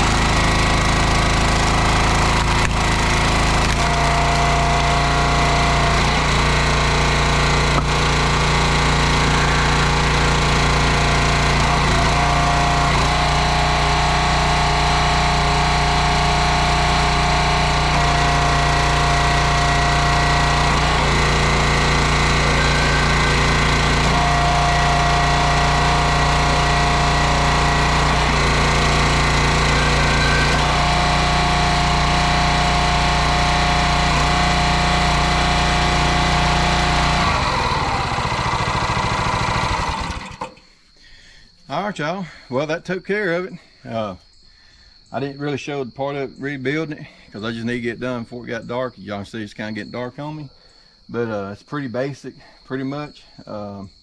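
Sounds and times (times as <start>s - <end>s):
small gasoline engine running: 0.0s - 40.7s
hydraulic whine: 0.0s - 41.0s.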